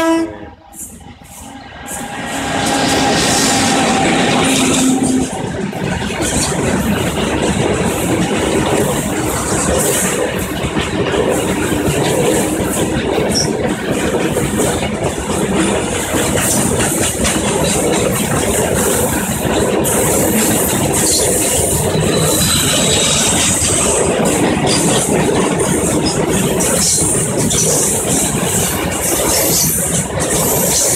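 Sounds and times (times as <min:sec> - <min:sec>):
freight train wheels rumbling: 0:00.0 - 0:30.9.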